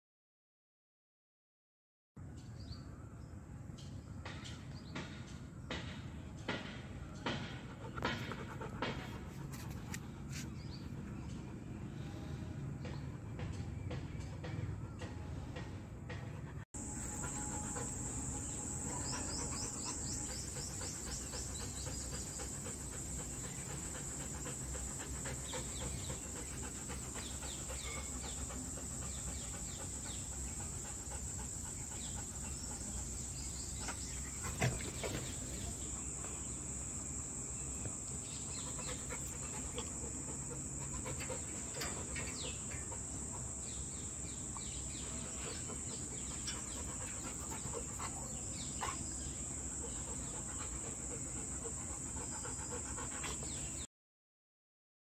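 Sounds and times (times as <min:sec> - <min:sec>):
high-pitched insect drone: 0:16.8 - 0:25.7
small birds chirping: 0:16.8 - 0:53.9.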